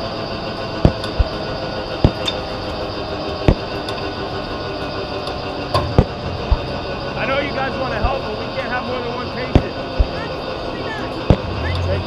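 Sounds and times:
turbine engine whining: 0.0s - 12.0s
sharp knocks: 0.8s - 1.3s, 5.7s - 6.7s.

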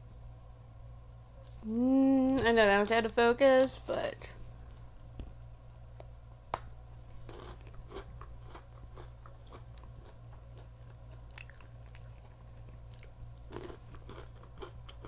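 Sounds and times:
steady low hum: 0.0s - 15.0s
chewing crunchy pretzel sticks: 6.0s - 15.0s.

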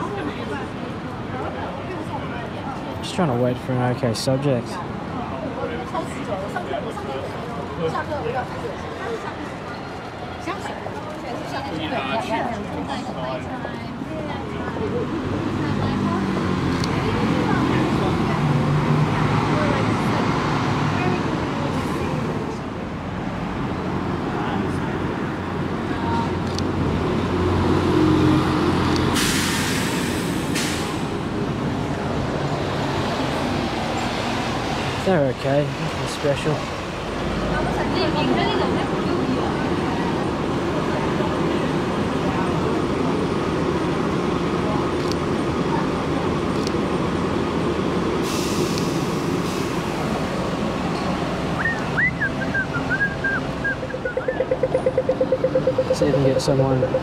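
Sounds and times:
street traffic: 0.0s - 57.0s
sharp hiss of air: 29.1s - 31.1s, 48.2s - 49.9s
high-pitched squeal: 53.6s - 57.0s.

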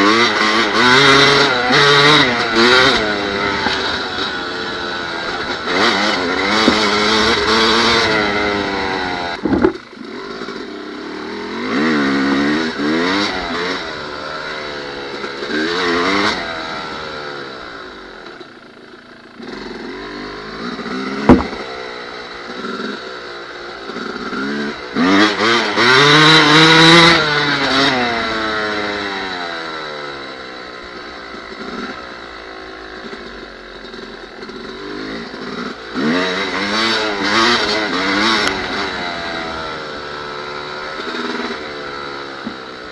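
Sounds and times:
dirt bike engine revving: 0.0s - 42.9s
sharp knocks: 9.4s - 9.8s, 21.2s - 21.7s.

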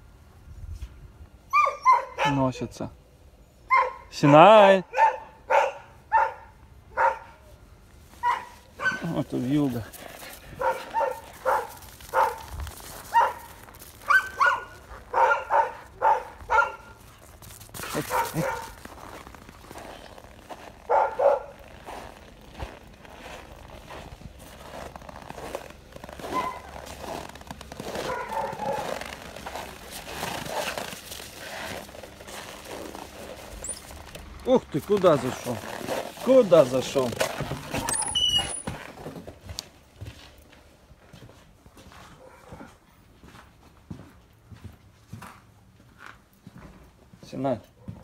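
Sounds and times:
dog barking: 1.6s - 2.5s, 3.7s - 7.5s, 8.2s - 9.2s, 10.6s - 12.5s, 13.1s - 13.5s, 14.1s - 17.0s, 18.0s - 18.8s, 20.9s - 21.6s, 26.3s - 26.8s, 27.9s - 29.0s, 42.1s - 42.8s, 47.8s - 48.0s
paws crunching on snow: 7.0s - 48.0s
dog whining: 37.7s - 38.7s.

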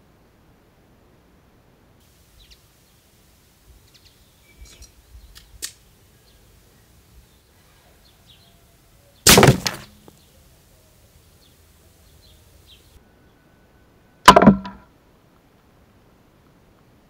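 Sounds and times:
air gun shots: 9.3s - 10.0s
pellet hitting metal can: 9.3s - 10.0s, 14.3s - 14.8s.

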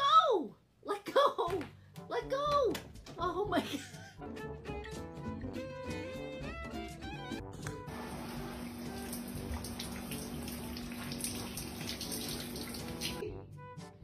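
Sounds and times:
water running and spraying: 7.9s - 13.2s.

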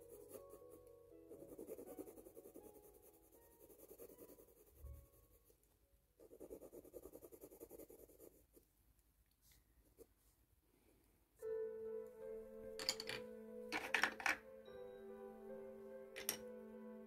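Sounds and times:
pencil scratching on paper: 0.0s - 8.7s.

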